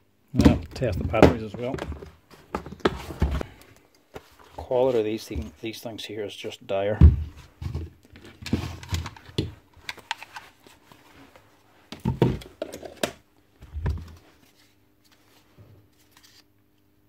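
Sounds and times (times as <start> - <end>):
plastic parts clattering and knocking: 0.4 - 3.5, 7.0 - 10.5, 11.9 - 14.2.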